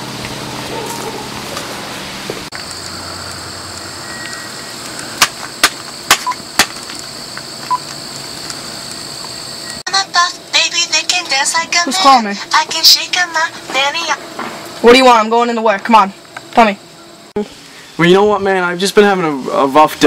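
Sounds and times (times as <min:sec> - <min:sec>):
background hiss: 0:00.0 - 0:20.0
short beeps: 0:03.8 - 0:04.8.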